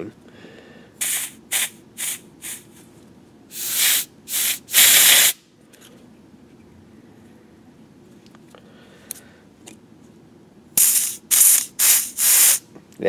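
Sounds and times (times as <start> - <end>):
compressed air hissing from blow gun: 1.0 - 2.7, 3.5 - 5.4, 10.8 - 12.6.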